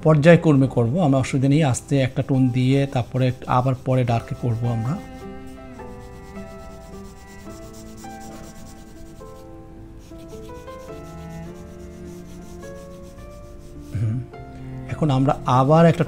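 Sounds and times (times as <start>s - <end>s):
soft background music: 0.0s - 16.0s
pencil scratching on paper: 2.1s - 14.0s.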